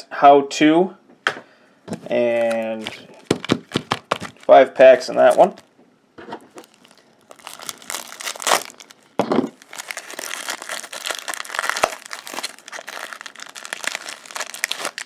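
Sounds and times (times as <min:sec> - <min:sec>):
plastic shrink wrap crinkling: 0:01.9 - 0:05.7, 0:06.4 - 0:15.0.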